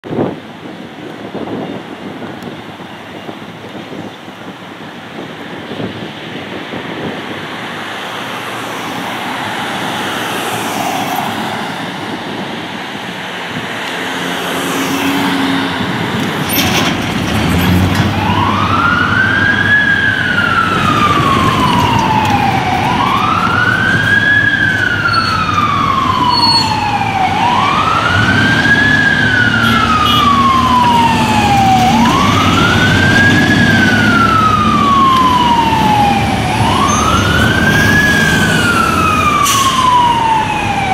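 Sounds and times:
street noise: 0.0s - 40.9s
fire engine siren wailing: 8.2s - 13.2s, 17.5s - 40.9s.

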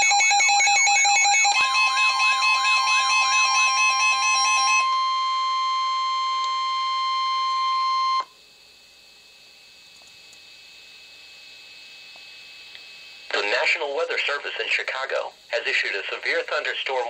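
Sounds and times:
warbling siren alarm: 0.0s - 8.3s
steady warning tone: 0.0s - 8.4s
faint radio hiss: 9.6s - 17.0s.

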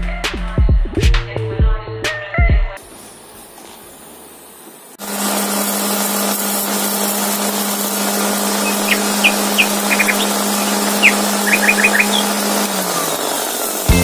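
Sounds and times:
mixer grinder humming: 5.0s - 14.0s.

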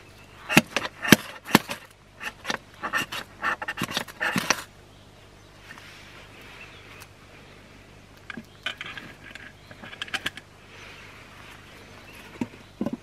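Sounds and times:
knife scraping wood: 0.4s - 4.7s.

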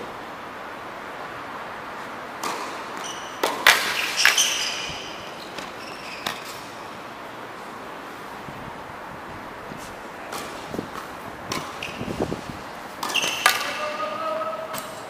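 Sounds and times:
shoes squeaking on court: 2.0s - 7.7s, 9.7s - 15.0s.

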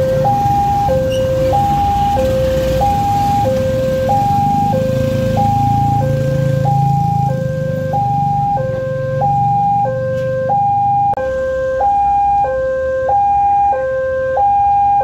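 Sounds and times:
motorcycle engines passing: 0.0s - 12.2s
two-tone level crossing alarm: 0.0s - 15.0s.

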